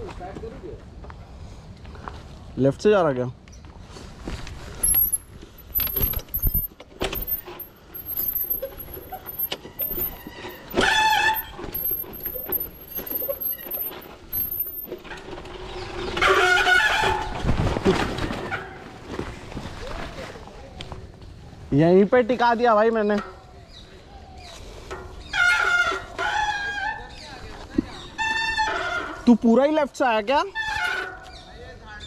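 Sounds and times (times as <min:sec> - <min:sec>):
bicycle rattling on dirt track: 0:04.7 - 0:19.8.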